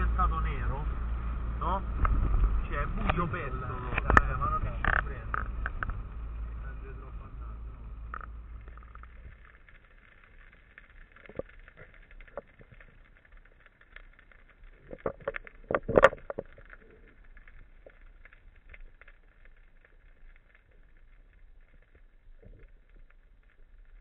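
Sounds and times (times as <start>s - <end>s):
underwater clicks and knocks: 2.0s - 2.6s, 4.0s - 6.1s, 8.0s - 13.3s, 13.9s - 20.5s.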